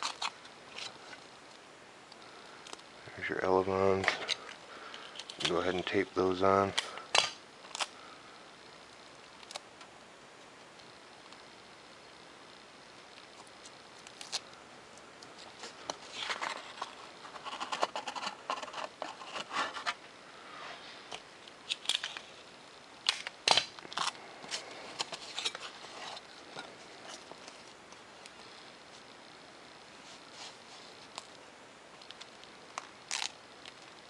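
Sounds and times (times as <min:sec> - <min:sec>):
tape crackling and clicking: 0:00.0 - 0:02.9, 0:03.9 - 0:06.0, 0:06.6 - 0:08.0, 0:08.9 - 0:11.5, 0:13.0 - 0:20.1, 0:21.1 - 0:22.3, 0:22.9 - 0:29.1, 0:30.5 - 0:34.0.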